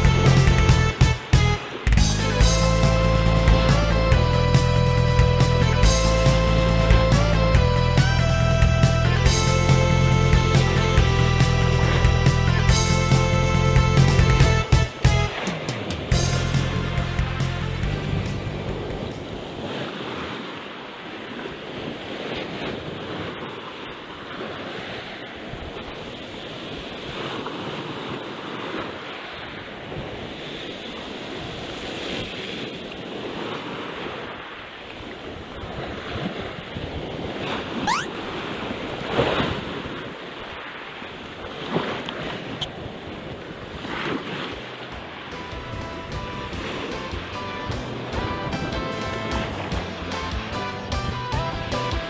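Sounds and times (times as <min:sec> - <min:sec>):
wind buffeting microphone: 0:17.8 - 0:51.8
waves washing on rocky shore: 0:18.9 - 0:50.0
sharp rising whistle: 0:37.9 - 0:38.1.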